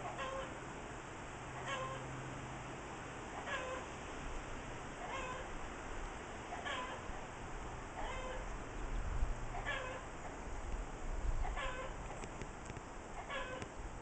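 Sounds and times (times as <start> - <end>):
animal mewing call: 0.0 - 0.6, 1.6 - 2.1, 3.4 - 3.9, 5.0 - 5.5, 6.5 - 7.2, 8.0 - 8.5, 9.5 - 10.1, 11.4 - 12.2, 13.2 - 13.7.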